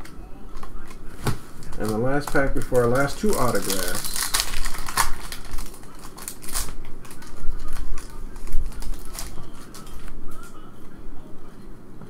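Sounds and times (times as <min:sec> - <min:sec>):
foil pack tearing and crinkling: 0:01.6 - 0:10.4.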